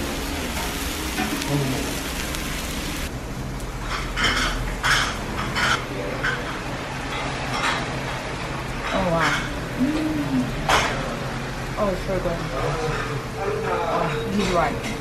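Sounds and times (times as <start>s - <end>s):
beef sizzling on a grill plate: 0.0s - 6.4s.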